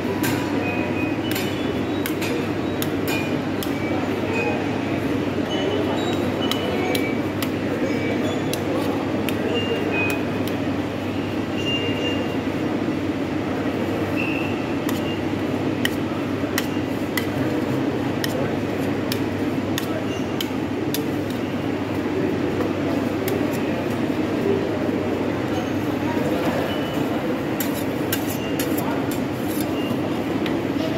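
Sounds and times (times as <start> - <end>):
metal spatulas scraping and tapping: 1.2 - 4.5, 5.4 - 10.6, 14.2 - 21.5, 26.8 - 30.1
spatula squeaks: 5.4 - 10.3, 19.8 - 20.6, 27.6 - 30.2.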